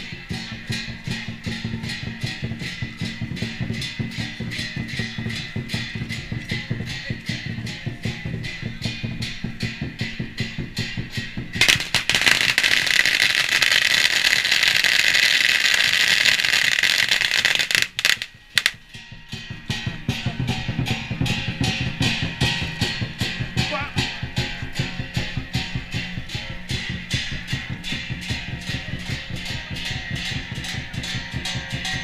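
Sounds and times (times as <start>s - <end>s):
music with steady beat: 0.0s - 32.0s
firecrackers crackling: 11.5s - 18.8s.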